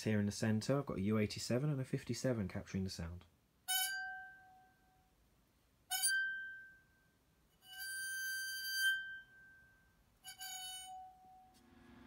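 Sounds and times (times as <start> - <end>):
wine glass bowed with violin bow: 7.6 - 11.6.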